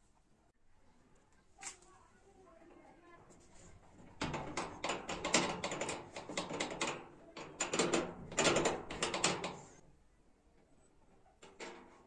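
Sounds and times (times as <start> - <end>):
metal latch rings clicking and rattling: 4.0 - 9.8.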